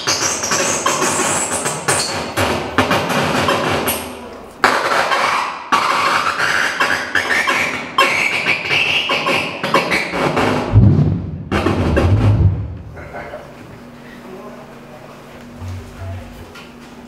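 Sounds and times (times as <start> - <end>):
loud low droning tone: 10.6 - 13.2.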